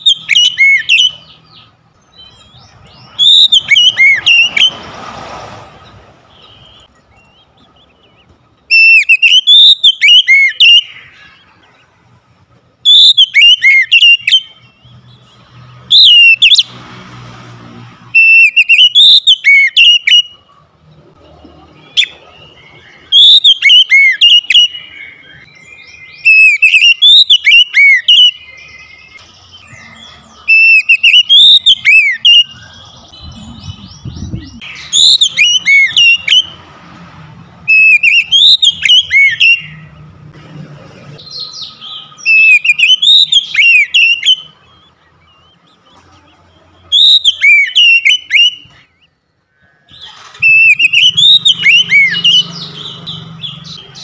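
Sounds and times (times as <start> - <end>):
bird singing whistled phrases: 0.0 - 1.4, 2.1 - 4.7, 8.1 - 11.3, 12.8 - 14.9, 15.9 - 16.7, 18.2 - 20.4, 21.8 - 36.6, 37.7 - 39.8, 41.2 - 45.6, 46.9 - 49.1, 50.4 - 54.0.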